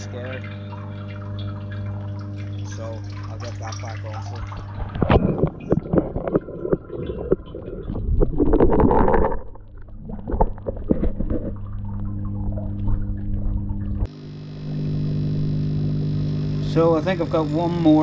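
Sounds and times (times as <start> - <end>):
water sloshing and splashing: 0.0 - 14.1
pond pump hum: 0.0 - 18.0
second steady hum: 0.0 - 18.0.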